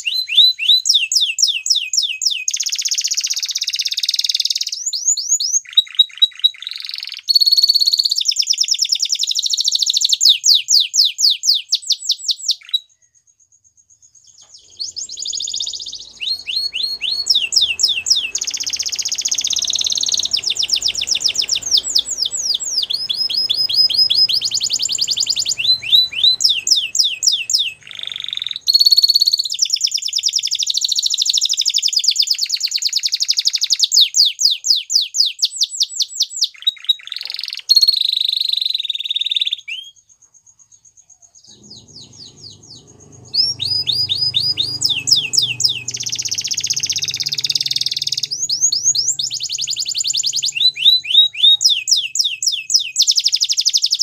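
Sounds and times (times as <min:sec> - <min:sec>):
canary singing rapid trills: 0:14.1 - 0:33.8, 0:41.2 - 0:54.0.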